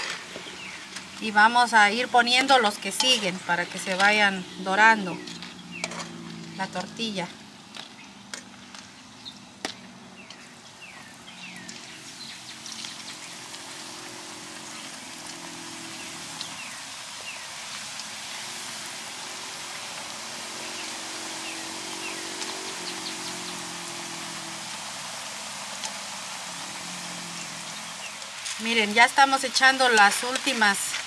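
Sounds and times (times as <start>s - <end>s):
tortilla frying in oil: 0.0s - 31.0s.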